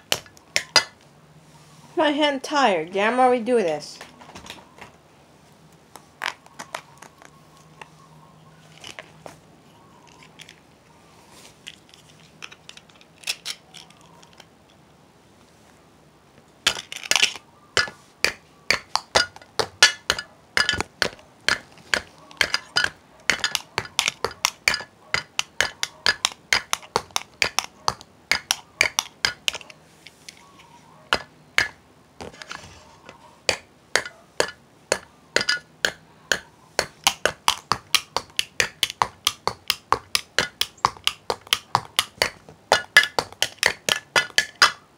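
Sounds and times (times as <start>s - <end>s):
drumming on hard objects: 0.0s - 1.0s, 16.7s - 29.6s, 31.1s - 32.4s, 33.5s - 44.8s.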